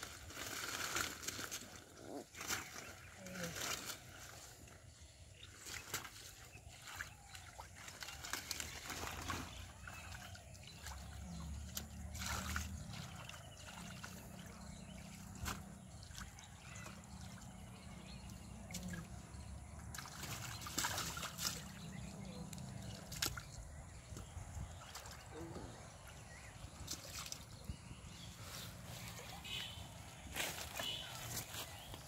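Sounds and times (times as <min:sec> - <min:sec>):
water splashes: 0:00.0 - 0:28.0
hands sloshing through muddy water: 0:00.0 - 0:32.0
water trickling: 0:06.7 - 0:27.7.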